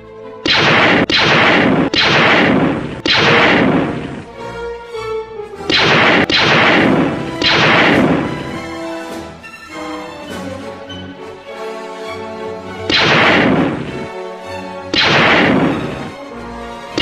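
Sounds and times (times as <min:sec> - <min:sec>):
orchestral music: 0:00.0 - 0:02.0, 0:02.6 - 0:17.0
handgun shots: 0:00.5 - 0:04.3, 0:05.7 - 0:08.6, 0:12.9 - 0:14.1, 0:15.0 - 0:16.2.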